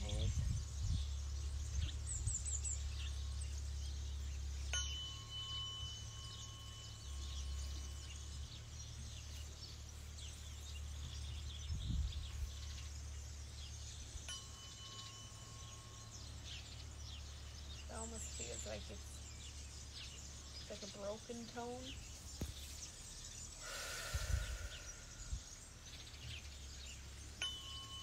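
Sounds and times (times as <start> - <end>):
tuning forks ringing: 2.9 - 8.6, 13.6 - 17.2, 26.8 - 28.0.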